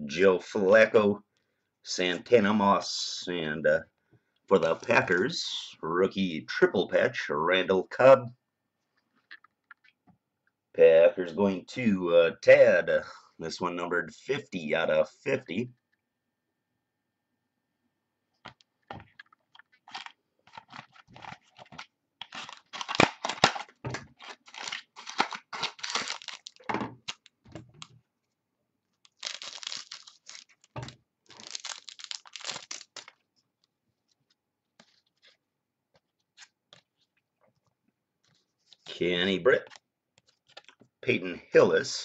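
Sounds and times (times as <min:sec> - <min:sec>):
foil wrapper tearing and crinkling: 0:19.7 - 0:27.3, 0:29.0 - 0:33.2.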